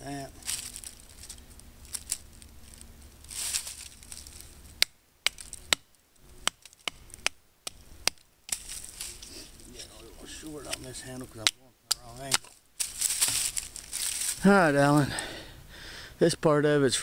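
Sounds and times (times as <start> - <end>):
scratchy rustle: 0.4 - 4.7, 8.5 - 10.9, 12.4 - 14.5
stick knocking knife through wood: 4.8 - 8.6, 10.6 - 12.5.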